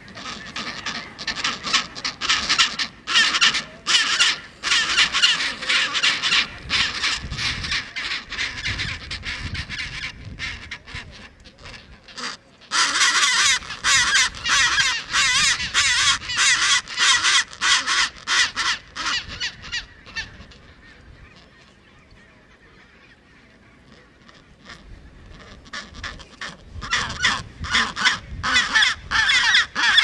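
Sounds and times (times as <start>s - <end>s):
penguins calling harshly: 0.0s - 20.6s, 23.9s - 30.0s
faint penguin colony calls: 0.0s - 30.0s.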